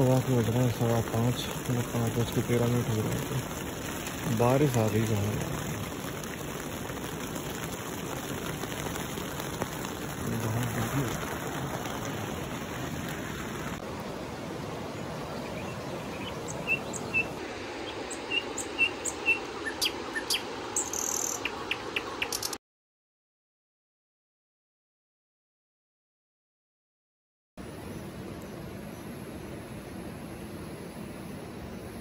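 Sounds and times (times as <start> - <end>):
river rushing: 0.0 - 22.2
rain on tent fabric: 0.0 - 22.6.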